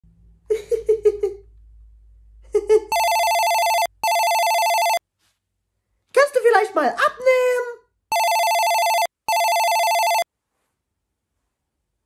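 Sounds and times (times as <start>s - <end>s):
man laughing: 2.5s - 3.0s
telephone ringing with warbling trill: 2.9s - 5.0s, 8.1s - 10.3s.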